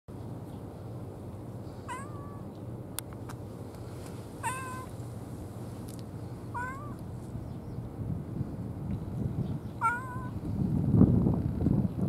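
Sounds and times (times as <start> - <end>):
low background rumble: 0.1 - 12.0
cat meowing: 1.9 - 2.5, 4.4 - 4.9, 6.5 - 7.0, 9.8 - 10.4.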